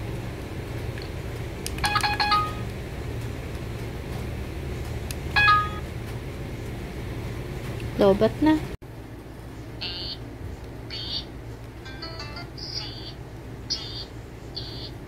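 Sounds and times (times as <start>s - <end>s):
low steady hum: 0.0s - 15.0s
electronic beeps: 12.6s - 15.0s.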